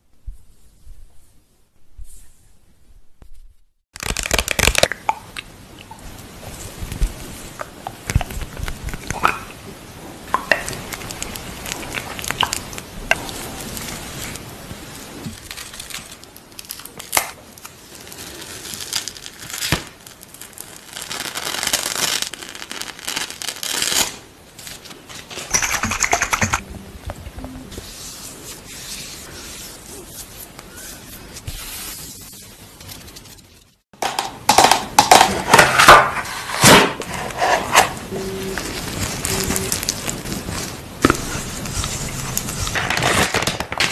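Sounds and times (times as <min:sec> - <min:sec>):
packaging crinkling: 0:04.0 - 0:05.2, 0:10.4 - 0:26.6, 0:35.0 - 0:43.9.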